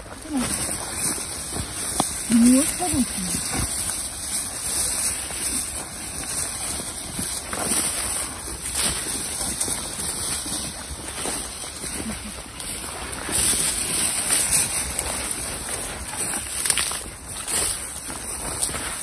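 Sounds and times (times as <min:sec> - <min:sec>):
dry grass rustling and crunching: 0:00.0 - 0:19.0
wind rumbling on microphone: 0:00.0 - 0:19.0.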